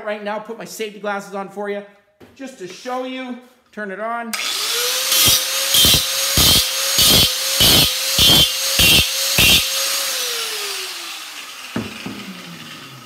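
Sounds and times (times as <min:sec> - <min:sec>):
angle grinder whining: 0:04.4 - 0:13.0
grinder disc grinding metal: 0:04.4 - 0:13.0.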